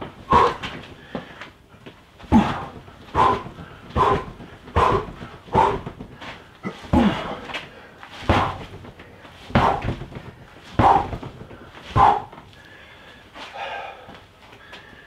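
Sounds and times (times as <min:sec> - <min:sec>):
sharp exhaled grunt: 0:00.3 - 0:00.8, 0:02.3 - 0:05.9, 0:06.6 - 0:07.5, 0:11.9 - 0:12.4
knee strikes on rubber dummy: 0:02.3 - 0:06.2, 0:06.8 - 0:07.4, 0:08.2 - 0:12.4.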